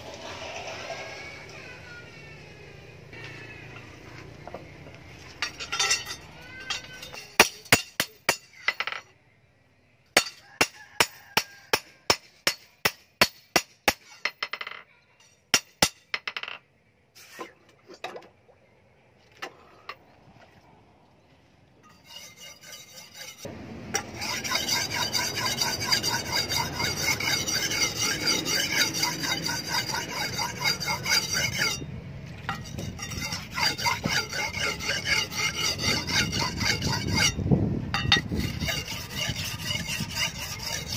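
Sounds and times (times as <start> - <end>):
hammer striking steel blade: 5.5 - 9.0, 10.2 - 14.8, 15.6 - 16.2.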